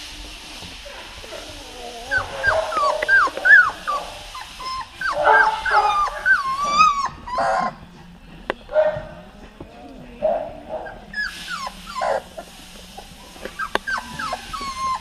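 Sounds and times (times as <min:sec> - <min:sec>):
puppies whining and yipping: 0:01.3 - 0:08.0, 0:10.8 - 0:15.0.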